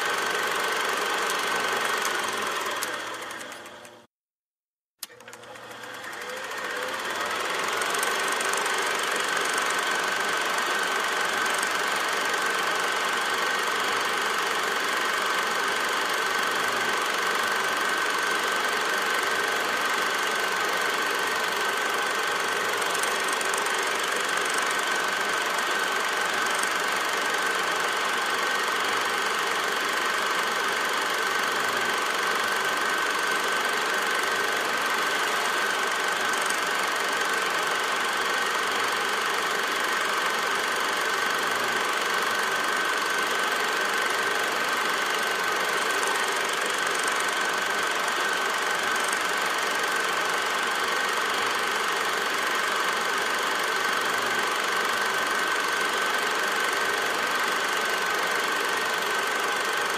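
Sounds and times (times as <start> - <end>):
machine whirring and rattling: 0.0 - 4.1, 5.0 - 59.9.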